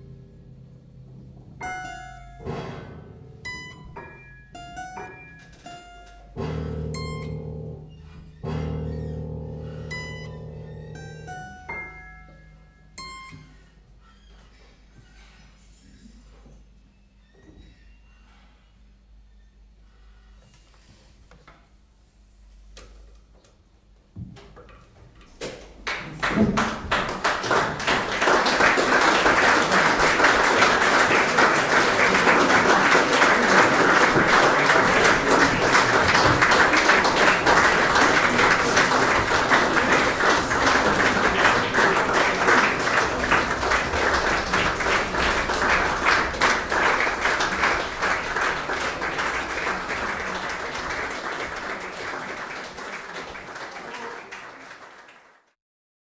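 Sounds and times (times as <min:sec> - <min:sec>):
audience applause: 0:25.8 - 0:55.6.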